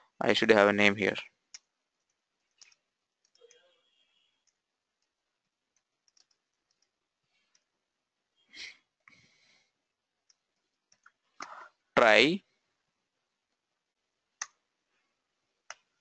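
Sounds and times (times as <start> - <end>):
faint keyboard keystrokes: 1.5 - 3.7, 4.4 - 7.7.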